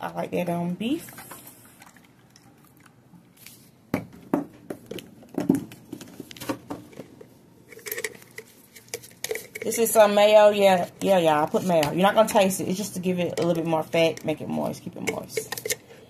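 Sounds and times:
containers and utensils clicking: 0:05.7 - 0:16.0.

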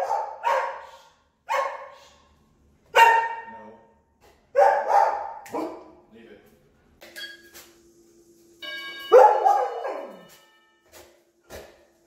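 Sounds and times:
dogs barking excitedly: 0:00.0 - 0:02.0, 0:02.9 - 0:03.5, 0:04.5 - 0:05.9.

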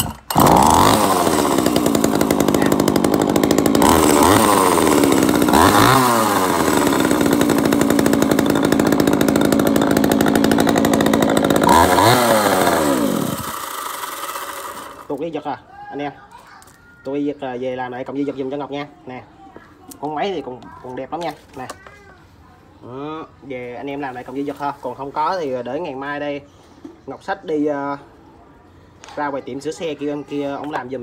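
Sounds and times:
chainsaw idling and revving: 0:00.0 - 0:15.3.

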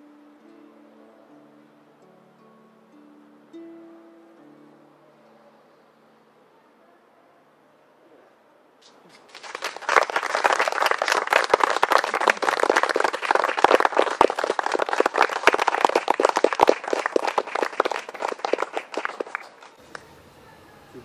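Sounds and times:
audience applauding: 0:09.1 - 0:19.8.

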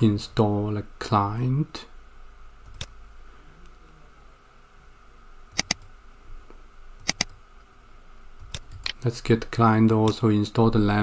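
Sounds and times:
mouse button clicks: 0:05.6 - 0:05.9, 0:07.0 - 0:07.4.

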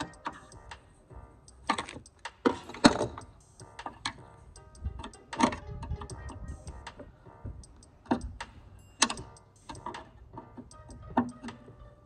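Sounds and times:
screwdriver clinking against metal: 0:08.8 - 0:11.4.

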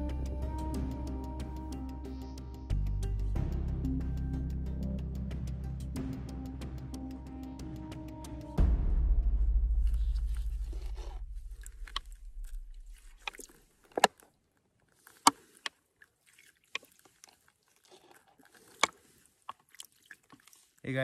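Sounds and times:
background music low note: 0:00.0 - 0:13.2.

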